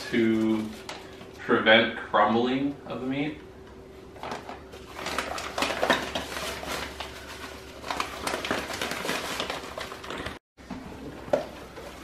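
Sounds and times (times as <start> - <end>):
plastic bag crinkling: 0.0 - 1.4, 4.2 - 10.4.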